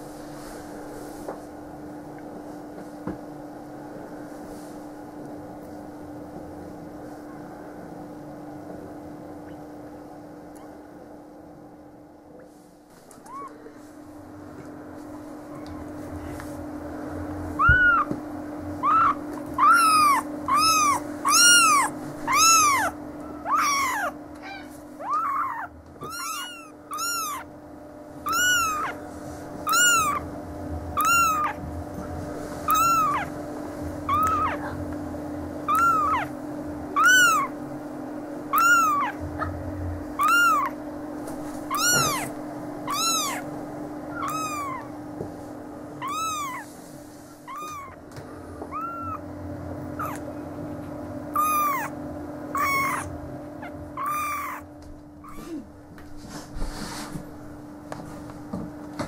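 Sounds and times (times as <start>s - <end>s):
kittens mewing: 13.2s - 13.7s, 17.5s - 18.2s, 18.8s - 27.5s, 28.2s - 29.0s, 29.6s - 30.3s, 31.0s - 31.6s, 32.6s - 33.4s, 34.0s - 35.0s, 35.7s - 37.6s, 38.5s - 39.6s, 40.2s - 40.8s, 41.6s - 43.5s, 44.1s - 45.0s, 46.0s - 46.8s, 47.4s - 48.0s, 48.6s - 50.3s, 51.3s - 55.8s.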